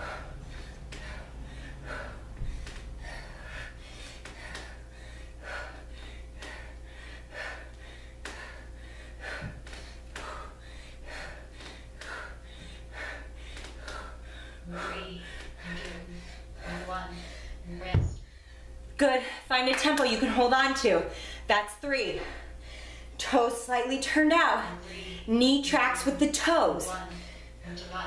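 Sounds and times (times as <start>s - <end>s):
woman breathing hard: 0.0s - 19.4s, 22.2s - 23.2s, 27.0s - 27.7s
faint steady hum: 0.0s - 28.0s.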